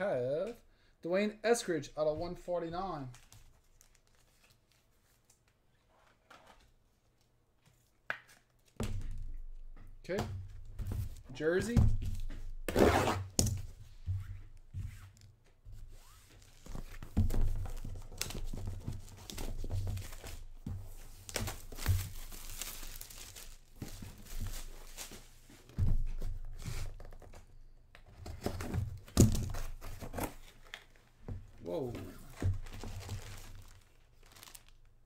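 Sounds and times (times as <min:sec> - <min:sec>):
plastic wrap crinkling: 0:03.0 - 0:05.9, 0:21.0 - 0:25.3, 0:31.7 - 0:35.0.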